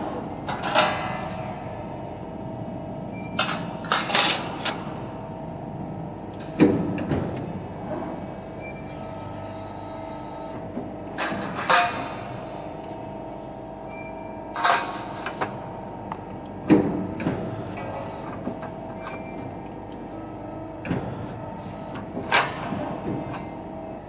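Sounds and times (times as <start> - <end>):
hydraulic press humming: 6.2 - 24.0.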